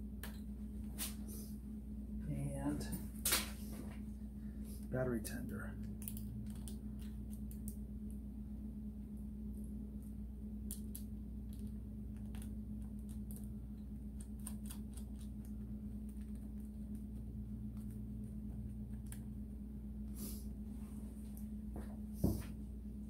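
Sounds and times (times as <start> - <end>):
steady low hum: 0.0 - 23.0
small parts clicking and tapping: 5.8 - 7.8.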